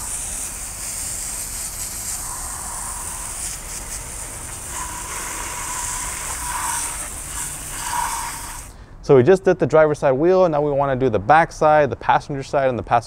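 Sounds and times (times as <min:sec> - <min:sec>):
hose spray hissing on tyre: 0:00.0 - 0:08.7.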